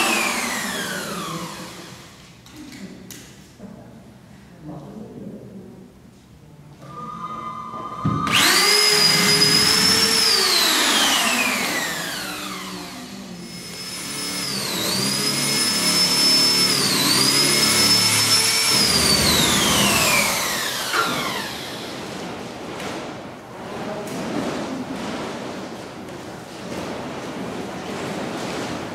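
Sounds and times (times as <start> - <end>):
electric drill whining: 0.0 - 2.2, 7.0 - 22.0.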